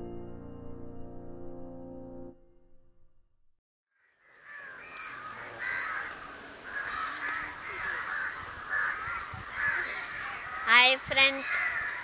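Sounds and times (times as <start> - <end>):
birds calling: 4.0 - 12.0
steady outdoor hiss: 4.2 - 12.0.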